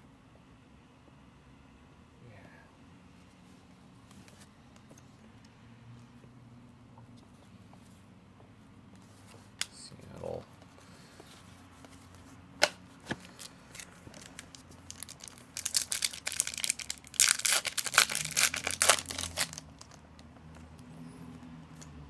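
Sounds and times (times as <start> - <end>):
foil wrapper tearing and crinkling: 13.1 - 20.0.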